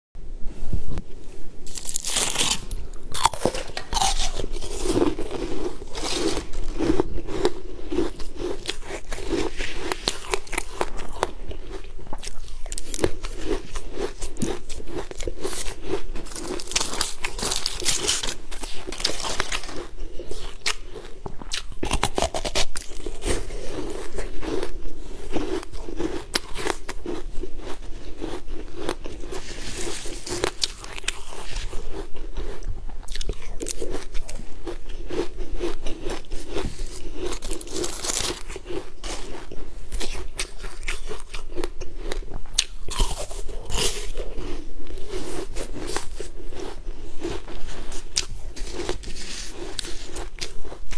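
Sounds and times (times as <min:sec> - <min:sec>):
person crunching ice treat: 0:01.7 - 0:50.9.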